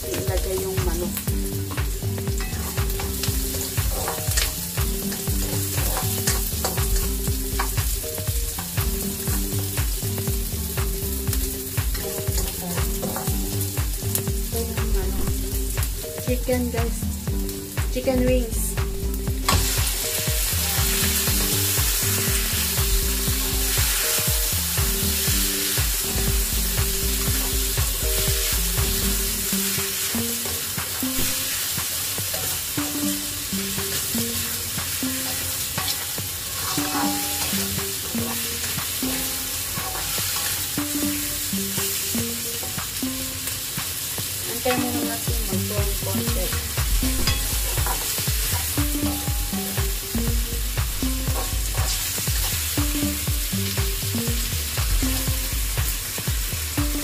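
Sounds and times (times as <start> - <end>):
low beat: 0.0 - 31.9, 44.6 - 57.0
background music melody: 0.0 - 57.0
chicken wings sizzling in a wok: 0.0 - 57.0
spatula scraping a wok: 2.4 - 7.8, 29.6 - 40.8, 47.2 - 48.8.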